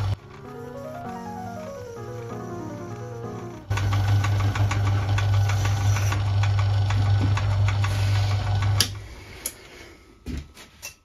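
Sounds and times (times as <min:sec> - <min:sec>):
lathe motor hum: 0:00.0 - 0:09.0
regular ticking from drive: 0:03.6 - 0:07.9.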